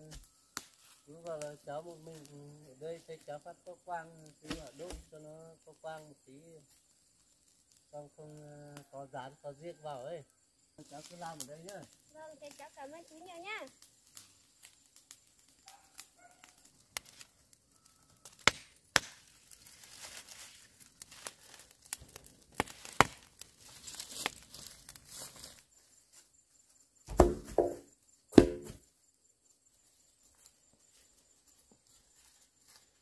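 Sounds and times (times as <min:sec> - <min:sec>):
dry leaves crackling and snapping: 0:00.0 - 0:02.6, 0:10.8 - 0:25.8
bamboo poles knocking on ground: 0:27.1 - 0:28.8.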